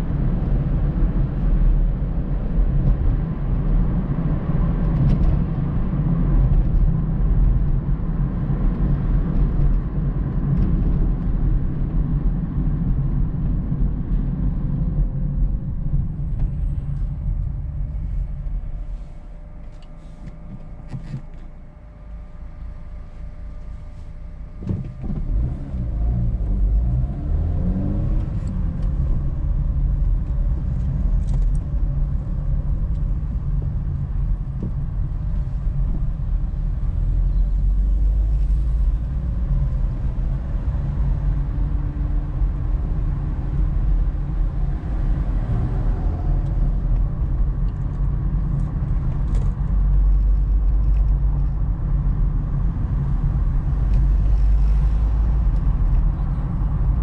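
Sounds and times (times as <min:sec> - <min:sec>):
car engine from inside cabin: 0:00.0 - 0:57.0.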